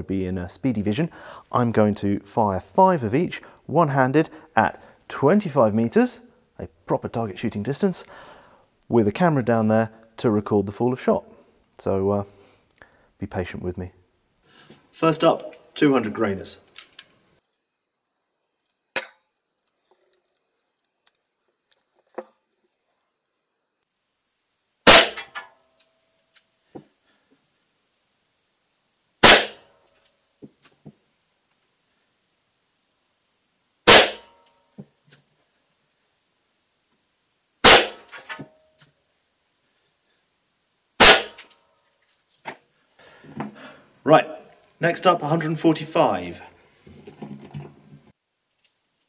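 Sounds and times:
revolver shots echoing indoors: 24.9 - 25.5, 29.2 - 29.7, 33.9 - 34.4, 37.6 - 38.4, 41.0 - 41.5.

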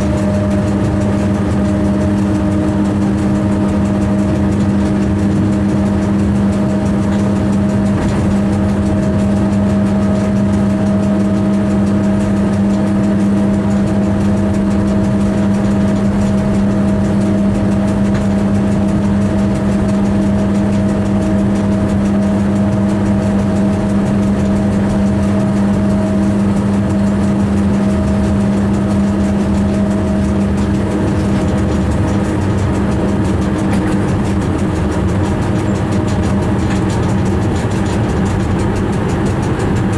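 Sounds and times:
train cab hum: 0.0 - 39.9
train running noise: 0.0 - 39.9.

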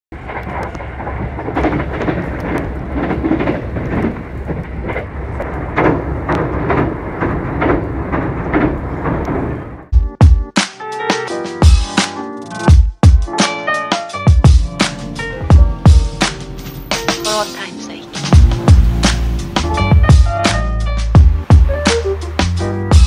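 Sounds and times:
train rumbling and rattling: 0.1 - 9.9, 14.4 - 23.0
music with heavy drum hits: 9.9 - 12.1, 12.7 - 13.5, 14.1 - 17.5, 18.2 - 23.0.

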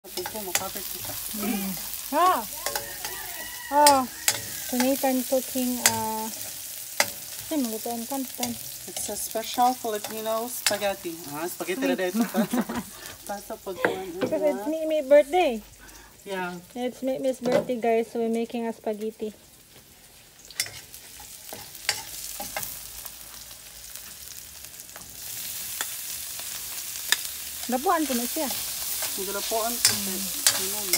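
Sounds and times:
vegetables sizzling in oil: 0.0 - 30.9
metal spatula clicking on wok: 0.1 - 1.2, 2.6 - 3.2, 3.8 - 5.1, 5.7 - 6.0, 10.0 - 10.9, 29.8 - 30.9.

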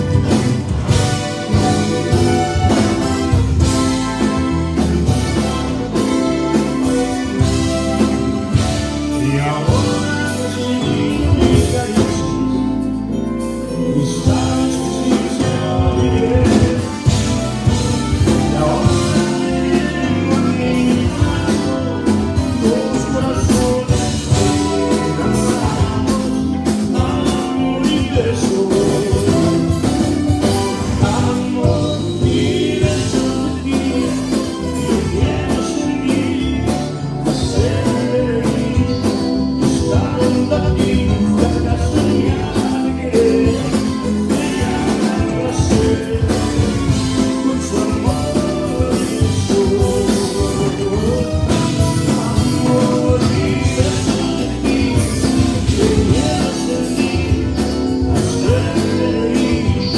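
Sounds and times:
man singing into microphone: 0.0 - 4.3, 6.8 - 12.7, 13.6 - 59.9
button accordion: 0.0 - 12.3
drum kit beat: 0.0 - 59.9
electric guitars: 0.0 - 59.9.

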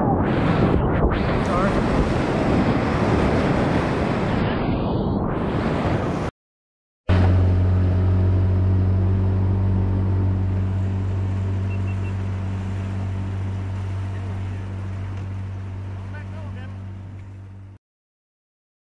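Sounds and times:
wind noise: 0.0 - 6.3
rushing water: 9.8 - 17.5.

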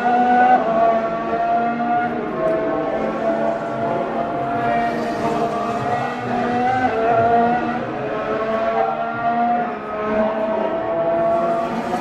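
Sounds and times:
racing car engine accelerating: 0.0 - 12.0.

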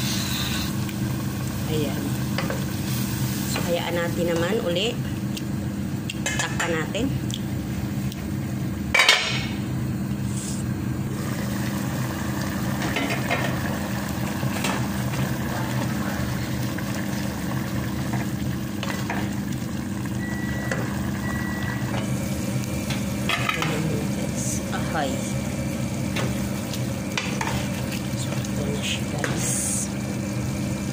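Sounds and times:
stew bubbling in a pot: 11.0 - 30.9.

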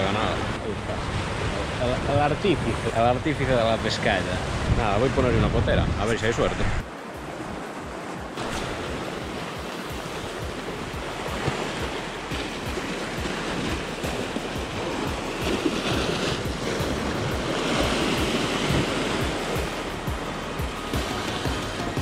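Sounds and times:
sea surf washing over rocks: 0.0 - 22.0
background music with steady beat: 6.8 - 22.0.

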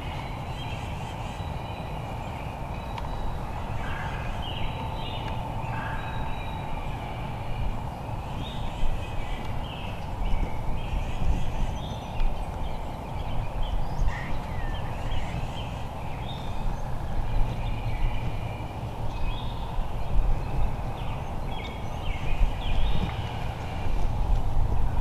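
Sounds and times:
steady low rumble: 1.9 - 25.0.

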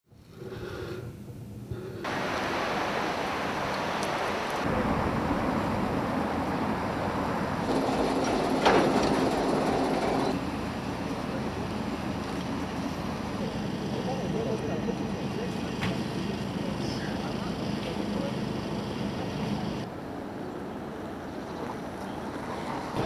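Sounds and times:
large fire burning: 2.0 - 19.9.

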